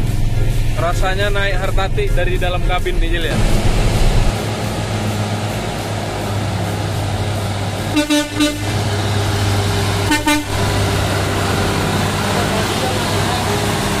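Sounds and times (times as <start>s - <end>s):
diesel truck engine running: 0.0s - 14.0s
vehicle horn toots: 7.9s - 8.9s, 10.0s - 10.8s.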